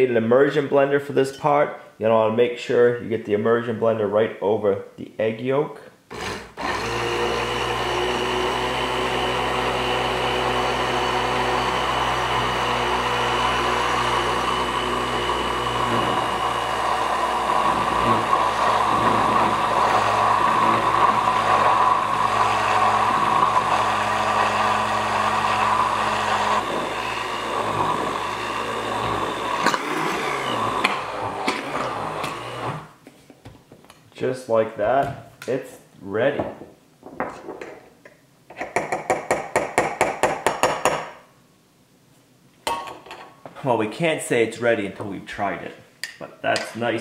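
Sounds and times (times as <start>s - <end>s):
immersion blender running in jar: 6.1s - 32.9s.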